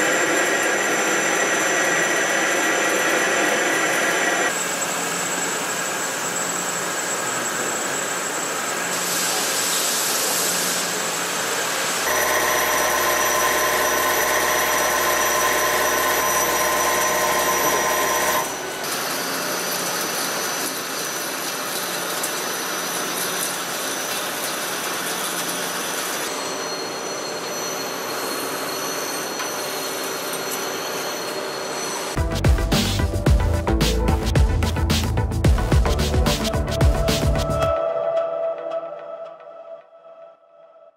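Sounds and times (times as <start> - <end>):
lathe machining noise: 0.0 - 32.2
music: 32.2 - 40.9.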